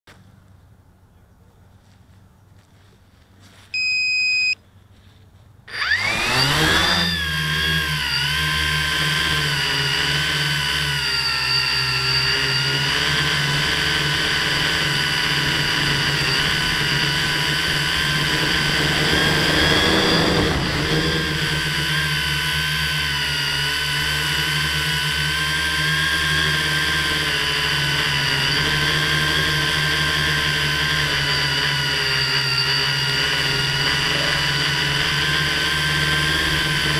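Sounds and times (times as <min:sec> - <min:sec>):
drone motors buzzing whine: 0:03.7 - 0:04.6, 0:05.6 - 0:36.9
short electronic beep: 0:03.7 - 0:04.6.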